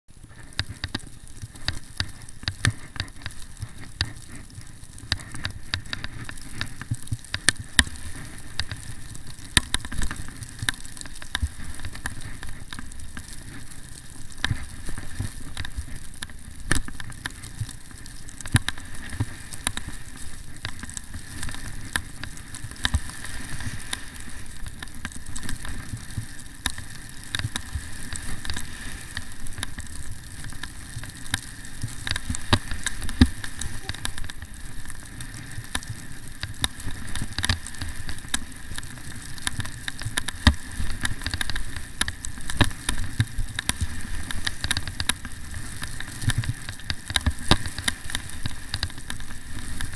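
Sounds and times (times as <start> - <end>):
skis knocking and clicking: 0.1 - 49.9
skis hissing on snow: 18.8 - 20.5, 21.1 - 39.4.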